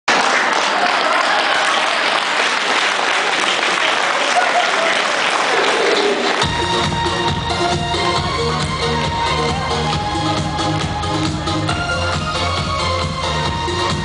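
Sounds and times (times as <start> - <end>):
audience applauding: 0.1 - 12.2
backing track with bass beat: 6.4 - 14.0.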